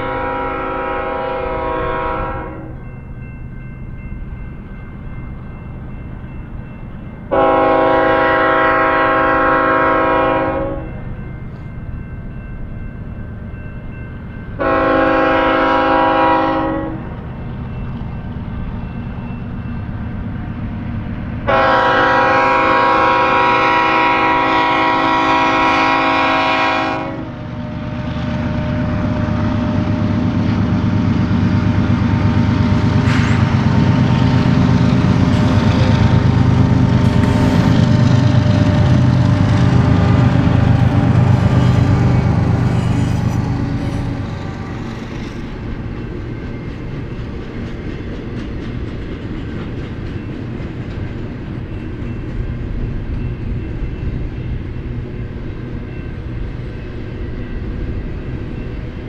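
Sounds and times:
locomotive air horn blasts: 0:00.0 - 0:02.7, 0:07.3 - 0:10.9, 0:14.6 - 0:17.0, 0:21.5 - 0:27.4.

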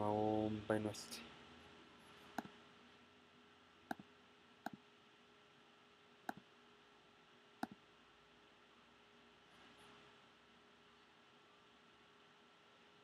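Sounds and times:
faint room hum: 0:00.0 - 0:13.0
computer mouse clicks: 0:03.9 - 0:04.8, 0:07.6 - 0:07.8.

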